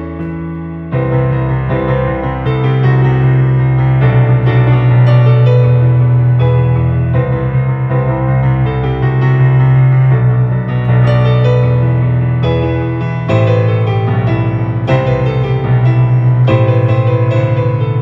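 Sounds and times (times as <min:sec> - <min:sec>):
digital piano playing: 0:00.0 - 0:18.0.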